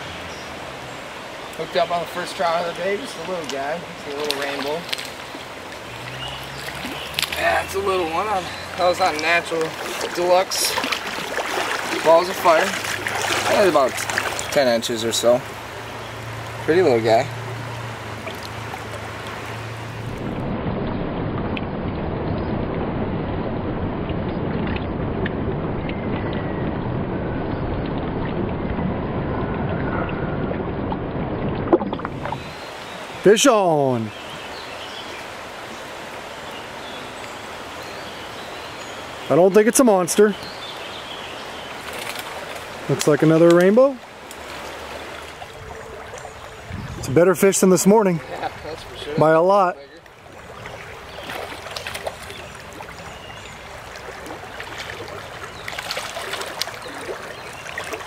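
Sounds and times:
stream water rushing and splashing: 0:00.0 - 0:58.0
sharp splash: 0:03.1 - 0:14.8, 0:41.7 - 0:46.4, 0:50.2 - 0:58.0.

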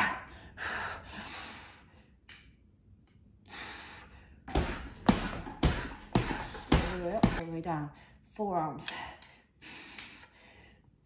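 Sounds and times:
woman breathing hard: 0:00.0 - 0:02.2, 0:03.4 - 0:07.0, 0:08.9 - 0:11.0.

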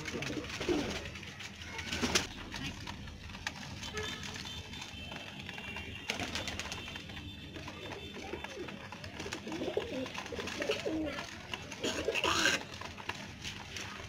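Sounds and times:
pigeons cooing: 0:00.0 - 0:01.3, 0:07.6 - 0:13.2.

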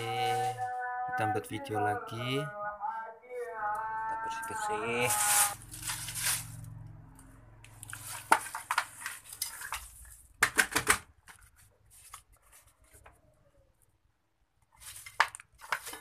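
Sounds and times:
plastic bag rustling: 0:05.0 - 0:06.8, 0:14.7 - 0:16.0
hard objects clattering: 0:07.8 - 0:11.6, 0:14.8 - 0:16.0.

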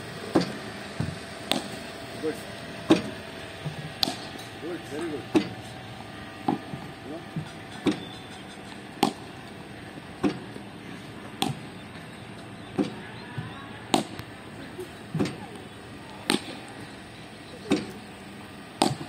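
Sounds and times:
bowling machine firing balls: 0:00.2 - 0:05.7, 0:08.8 - 0:19.0
bat cracking ball: 0:00.3 - 0:02.0, 0:02.8 - 0:04.6, 0:06.4 - 0:08.1, 0:08.7 - 0:17.0, 0:18.7 - 0:19.0.

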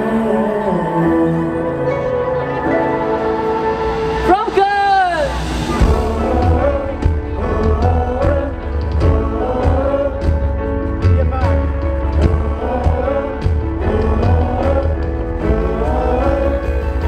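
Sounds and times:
man singing into a microphone: 0:00.0 - 0:02.9, 0:05.8 - 0:17.0
heavy bass: 0:01.4 - 0:17.0
drum beat: 0:04.2 - 0:16.6.

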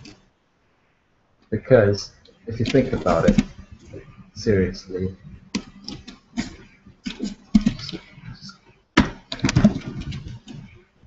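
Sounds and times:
computer clicks and taps: 0:05.5 - 0:10.8.

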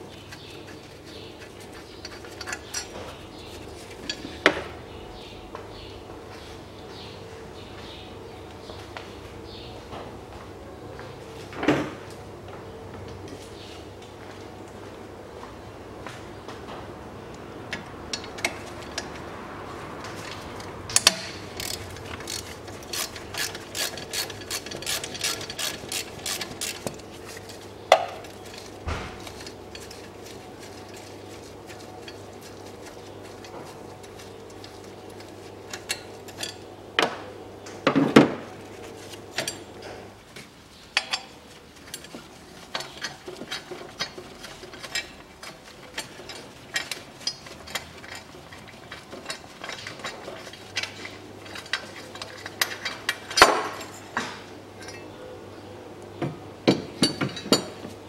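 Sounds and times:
sharp knocks of tools and parts: 0:20.2 - 0:30.1, 0:49.2 - 0:55.1, 0:56.2 - 0:58.0
ratchet wrench clicking: 0:20.6 - 0:27.5.

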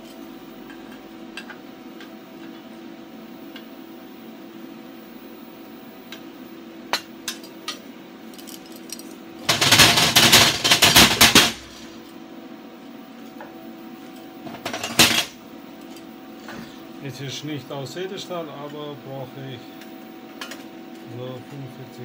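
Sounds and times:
steady low hum: 0:00.0 - 0:22.0
rapid metallic clatter on steel: 0:09.4 - 0:11.9.

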